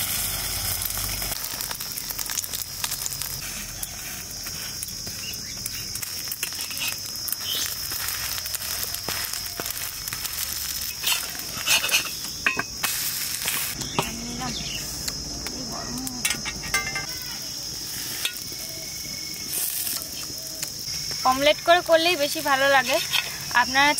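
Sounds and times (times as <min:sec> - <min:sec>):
omelette sizzling in oil: 0:00.0 - 0:23.9
spatula scraping: 0:10.9 - 0:14.1, 0:22.8 - 0:23.5.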